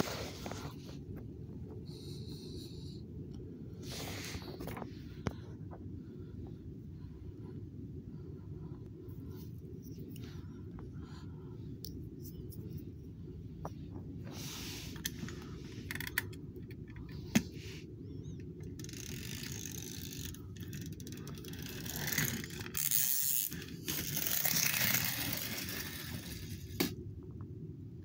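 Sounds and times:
toy bus rolling on wooden boards: 18.8s - 26.9s.

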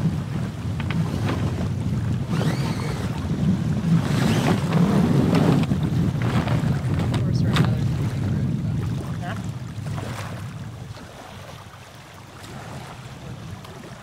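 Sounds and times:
sail clicks and rustling: 0.0s - 8.6s
wind buffeting microphone: 0.0s - 14.0s.

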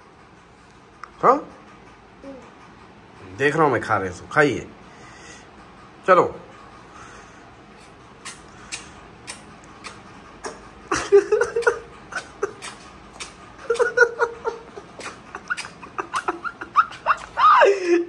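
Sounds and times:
toddler giggling and vocalizing: 10.4s - 18.0s.

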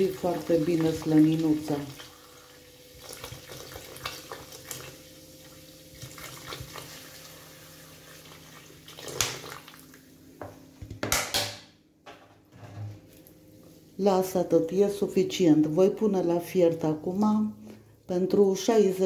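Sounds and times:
water pouring into pot: 0.0s - 10.1s.

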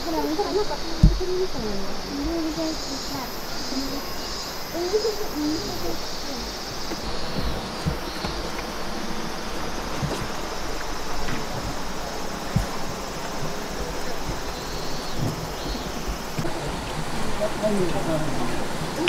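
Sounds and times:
soft low thumps: 0.0s - 2.8s, 6.7s - 17.3s
even hiss: 0.0s - 19.0s
insects droning: 0.0s - 19.0s.

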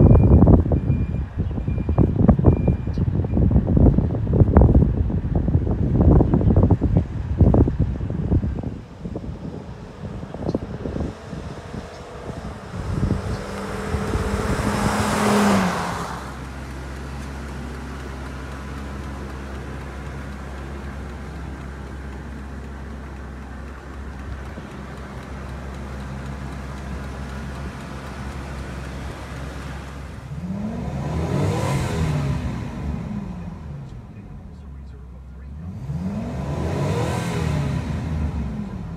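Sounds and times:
truck engine: 0.0s - 38.9s
tyres hissing on wet pavement: 13.4s - 33.4s.

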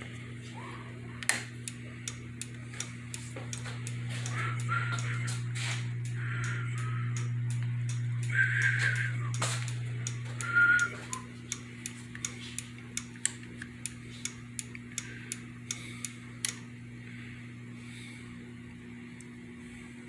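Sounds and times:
steady low hum: 0.0s - 20.0s
sharp ticks: 1.6s - 5.3s, 6.0s - 16.6s.

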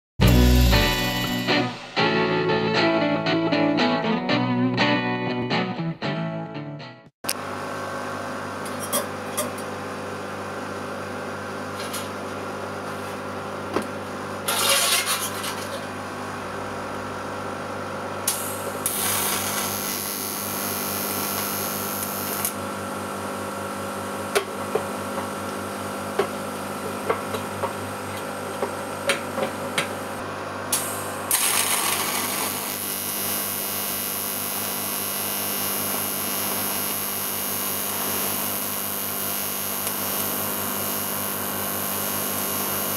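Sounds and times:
welding set hum: 0.2s - 2.0s, 7.2s - 42.9s
welding arc hissing and crackling: 18.3s - 22.6s, 30.8s - 42.9s.

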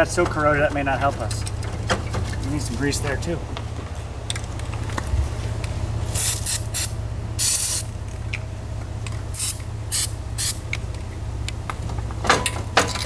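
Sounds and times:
aerosol can spraying: 6.2s - 7.9s, 9.4s - 10.6s.

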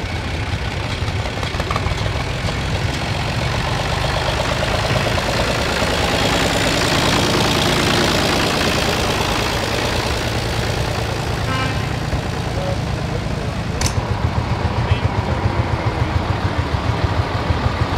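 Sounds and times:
tractor engine driving past: 0.0s - 17.9s.

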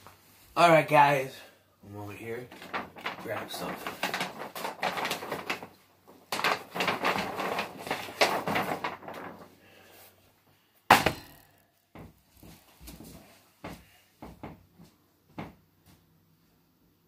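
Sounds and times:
rustling and clattering: 2.4s - 10.2s
sharp knock: 10.9s - 11.6s.

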